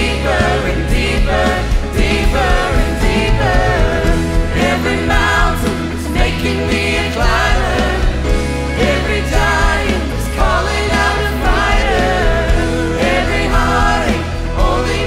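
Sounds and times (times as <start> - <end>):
choir singing: 0.0 - 15.0
instrumental backing with bass: 0.0 - 15.0.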